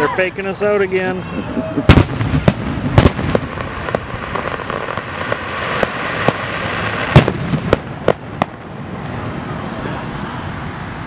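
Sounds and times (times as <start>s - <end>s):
firework shells bursting: 1.9s - 9.3s.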